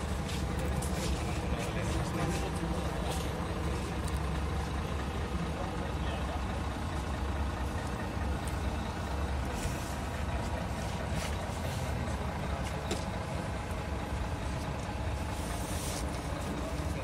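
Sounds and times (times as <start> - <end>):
diesel truck engine rumbling: 0.0 - 17.0.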